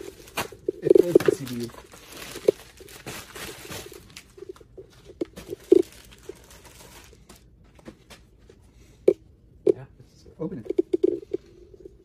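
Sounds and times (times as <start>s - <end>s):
plastic bag rustling: 0.0s - 8.4s.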